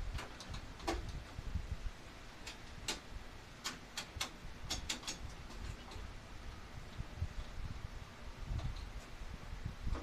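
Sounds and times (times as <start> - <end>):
hand tools clicking and tapping: 0.1 - 1.2, 2.4 - 6.1.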